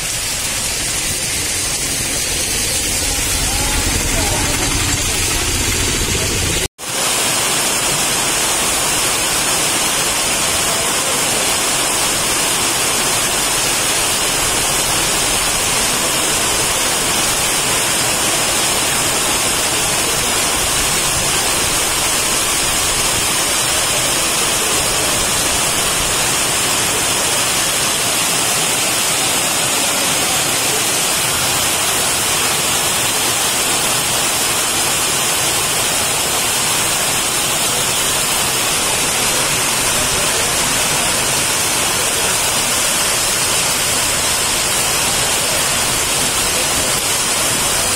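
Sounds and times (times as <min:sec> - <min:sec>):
traffic rumble: 0:00.0 - 0:06.7
heavy rain pouring: 0:00.0 - 0:47.9.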